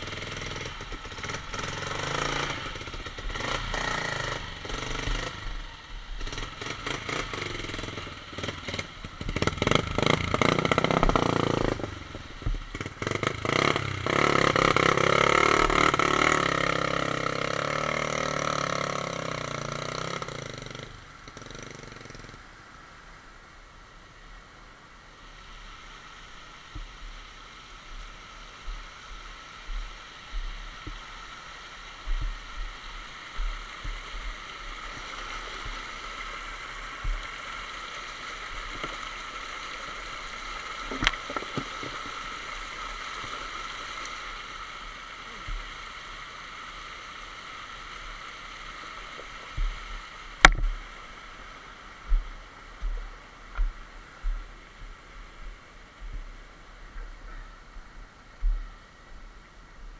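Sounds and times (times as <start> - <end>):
stream splashing over stones: 0.0 - 57.3.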